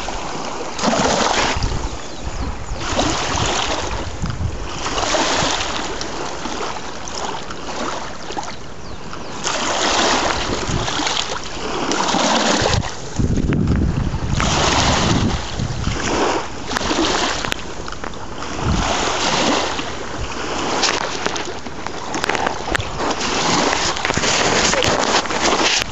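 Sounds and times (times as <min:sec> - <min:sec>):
small waves lapping on shore: 0:00.0 - 0:25.9
wind buffeting microphone: 0:00.0 - 0:25.9.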